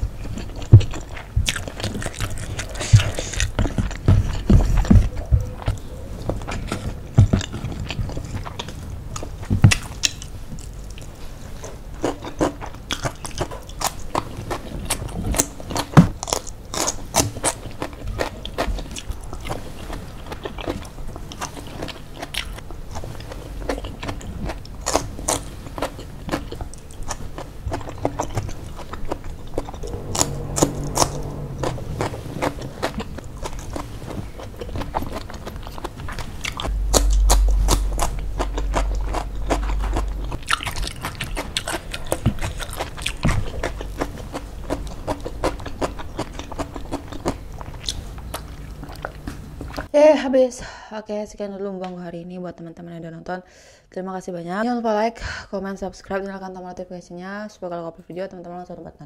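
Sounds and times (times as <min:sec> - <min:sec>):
chewing and crunching food: 0:00.0 - 0:31.4, 0:32.0 - 0:49.9.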